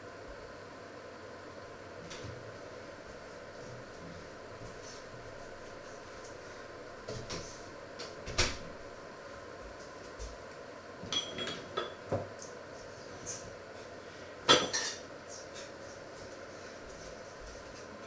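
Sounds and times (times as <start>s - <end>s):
faint steady hum: 0.0s - 18.0s
kitchenware clinking and clattering: 11.1s - 12.0s, 14.5s - 15.1s
metallic ring: 11.1s - 12.0s.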